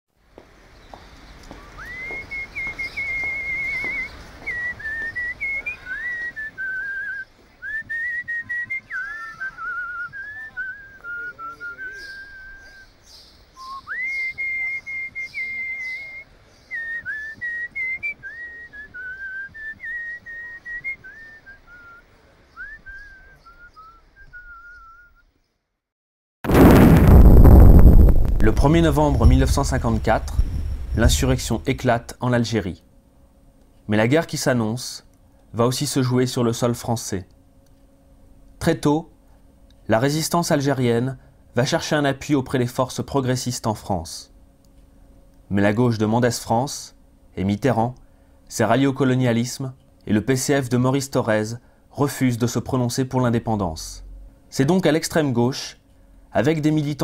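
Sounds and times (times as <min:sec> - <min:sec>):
person whistling a melody: 0:01.8 - 0:12.8, 0:16.8 - 0:22.0, 0:22.6 - 0:25.2
sudden loud noise: 0:26.4 - 0:32.1.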